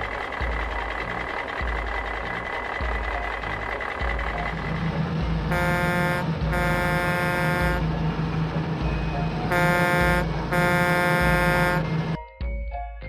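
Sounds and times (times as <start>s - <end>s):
truck engine hum: 0.0s - 12.3s
truck air horn honking: 5.4s - 8.2s, 9.2s - 12.2s.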